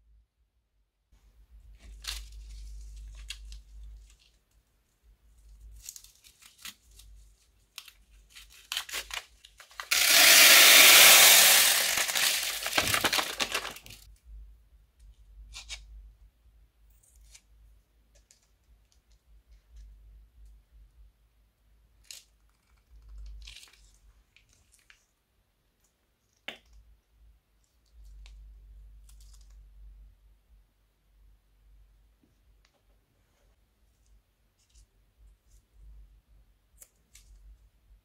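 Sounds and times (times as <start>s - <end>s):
cellophane bag crinkling: 5.7s - 14.1s
beads clicking as they settle: 9.8s - 13.7s
plastic beads pouring into bowl: 9.8s - 14.0s.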